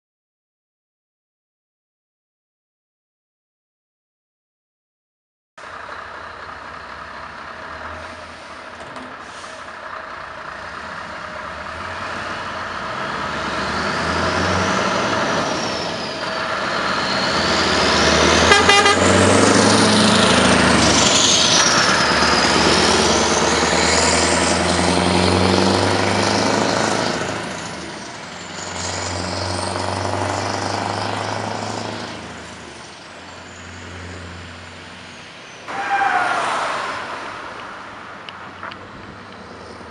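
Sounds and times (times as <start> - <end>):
truck engine accelerating: 5.6 - 39.9
high whistle: 15.4 - 18.9.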